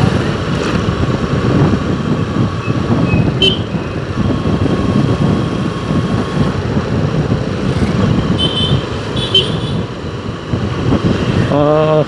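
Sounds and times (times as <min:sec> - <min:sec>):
rumble of passing vehicles: 0:00.0 - 0:12.0.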